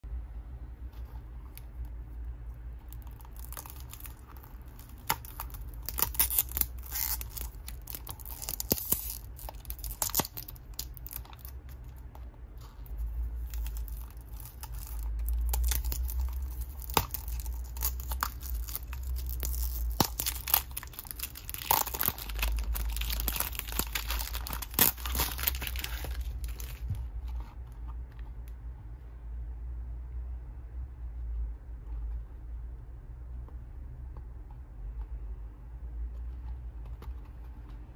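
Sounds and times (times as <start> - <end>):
cardboard seal tearing: 3.0 - 12.0, 13.4 - 27.0.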